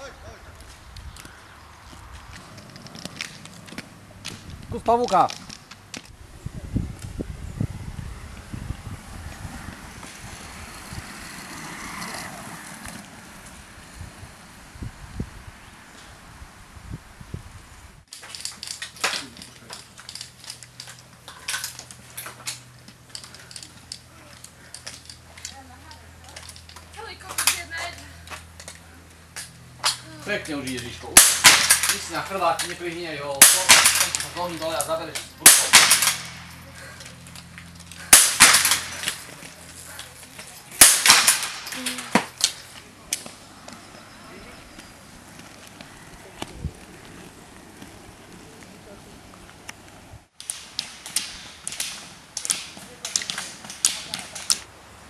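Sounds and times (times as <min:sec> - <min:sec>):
rifle shots cracking: 0:31.2 - 0:32.2, 0:33.4 - 0:34.5, 0:35.4 - 0:36.5, 0:38.0 - 0:39.3, 0:40.8 - 0:41.8.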